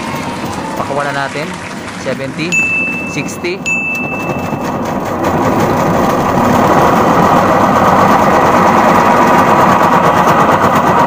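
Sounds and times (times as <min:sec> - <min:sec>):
washing machine spinning: 0:00.0 - 0:11.0.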